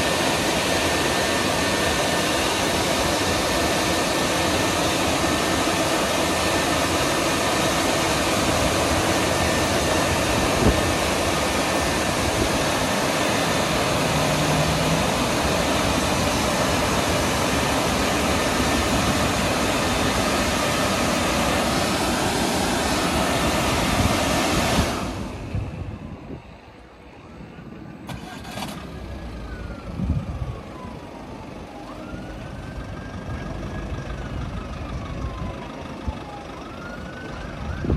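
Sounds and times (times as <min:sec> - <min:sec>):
car wash blower fans rushing: 0:00.0 - 0:37.9.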